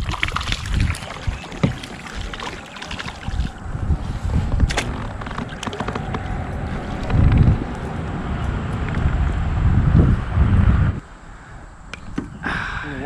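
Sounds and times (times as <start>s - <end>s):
wind rumble on microphone: 0.0s - 11.0s
gear knocking against kayak hull: 0.8s - 2.6s, 4.6s - 7.7s.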